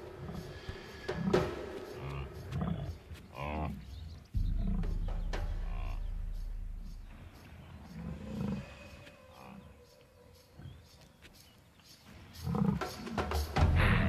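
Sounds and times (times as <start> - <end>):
lionesses growling: 0.0 - 9.9, 12.1 - 14.0.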